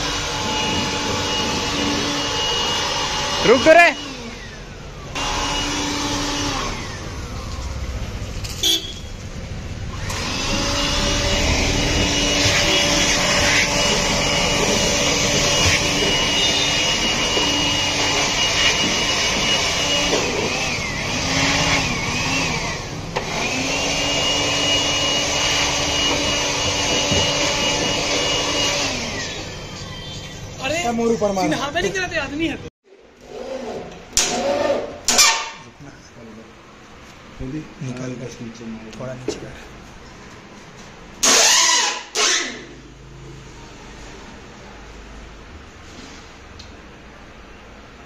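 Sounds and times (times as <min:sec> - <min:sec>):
electric air blower whine: 0:00.0 - 0:07.9, 0:09.9 - 0:29.8.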